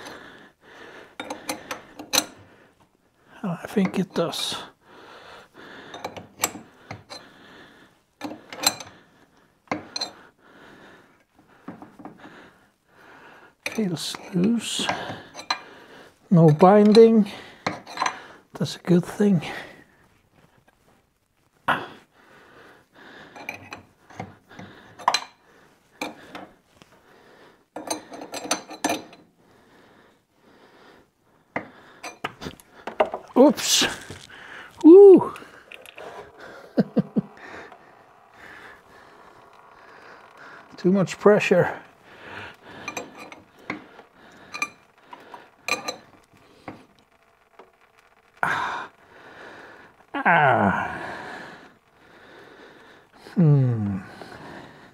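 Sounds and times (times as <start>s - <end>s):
spanner clinking on metal: 1.2s - 2.4s, 8.2s - 8.9s, 13.6s - 15.6s, 27.8s - 29.2s, 42.6s - 46.3s
wrench clinking on metal: 8.2s - 8.9s, 27.8s - 29.2s, 42.8s - 43.8s, 45.7s - 46.2s
person exhaling with effort: 33.7s - 40.7s, 48.4s - 51.6s, 52.2s - 54.9s.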